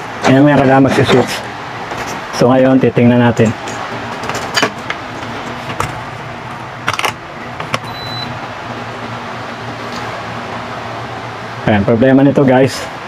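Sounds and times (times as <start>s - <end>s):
steady low hum: 0.0s - 13.0s
short high electronic beep: 7.9s - 8.3s.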